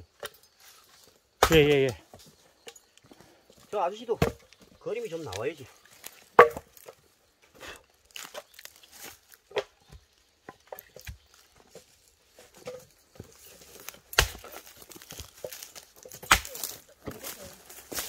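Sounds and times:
axe chopping firewood: 1.4s - 2.0s, 4.2s - 4.5s, 6.1s - 7.0s, 9.5s - 11.4s, 12.6s - 18.0s.

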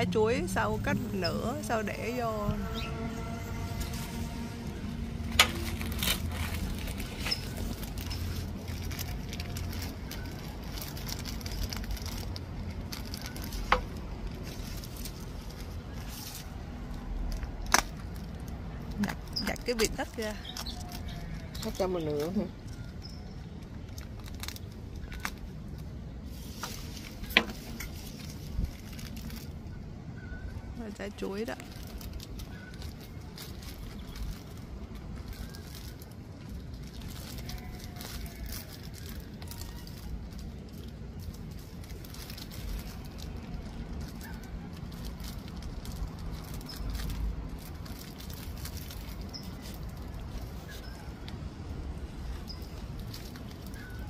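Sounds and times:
low steady rumble: 0.0s - 21.7s
plastic bag crinkling: 0.1s - 29.7s, 31.1s - 54.0s.

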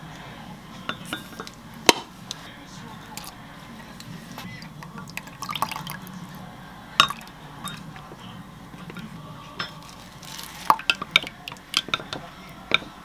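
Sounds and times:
spoon clinking against glass mug: 4.8s - 6.1s, 7.0s - 8.0s, 8.9s - 13.0s.

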